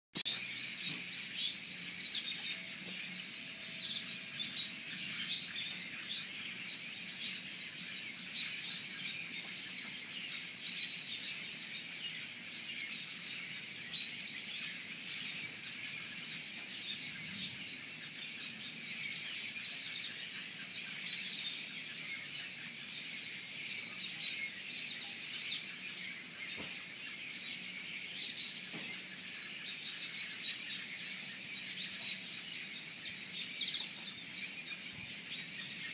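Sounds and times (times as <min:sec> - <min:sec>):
many birds chirping: 0:00.2 - 0:35.9.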